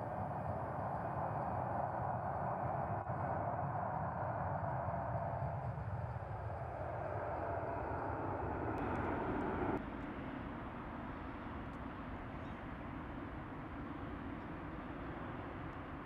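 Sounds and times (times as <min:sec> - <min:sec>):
jet engine rumble: 0:00.0 - 0:11.0.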